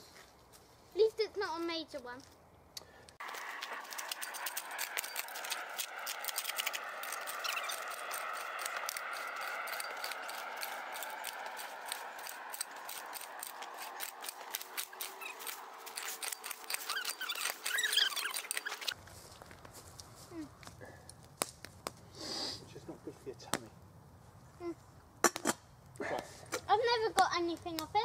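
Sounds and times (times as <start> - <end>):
spade scraping into soil: 3.3 - 19.0.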